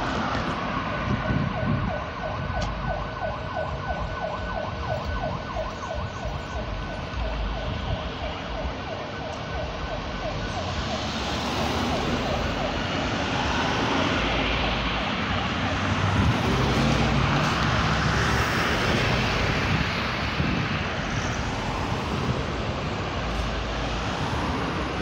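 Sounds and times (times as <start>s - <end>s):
street traffic: 0.0s - 25.0s
electronic siren yelping: 1.2s - 17.4s.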